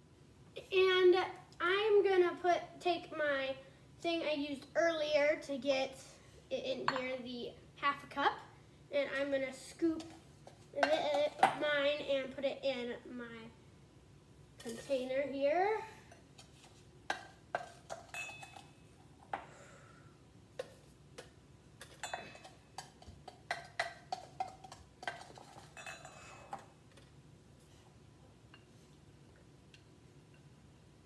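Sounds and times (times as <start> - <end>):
measuring cup clinking on glass: 18.1 - 18.7, 22.0 - 22.5, 25.8 - 26.2.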